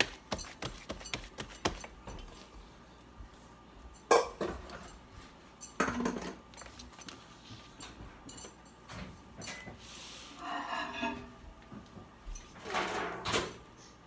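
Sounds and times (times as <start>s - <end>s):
kitchen clatter: 4.0s - 5.0s, 5.6s - 6.9s, 12.4s - 13.7s.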